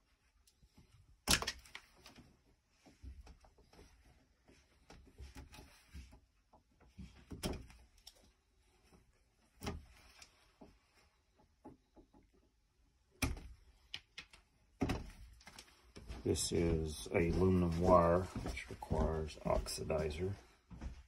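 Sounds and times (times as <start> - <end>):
clicks and knocks of wires and hand tool: 0.4 - 16.1.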